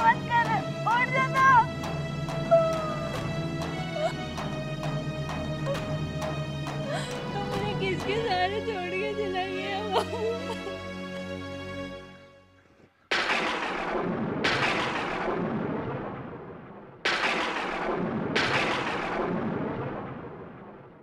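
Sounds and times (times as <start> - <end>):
sad background music: 0.0 - 12.8.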